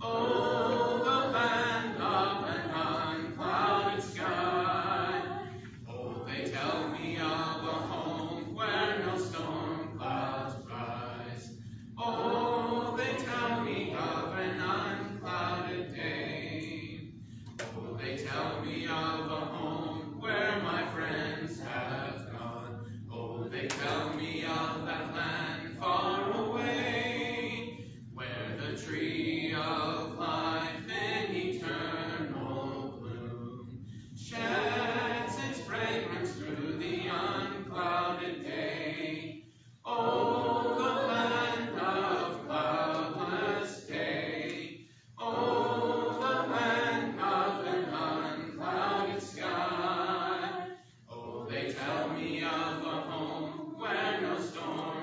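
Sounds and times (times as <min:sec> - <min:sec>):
congregation singing a hymn: 0:00.0 - 0:55.0.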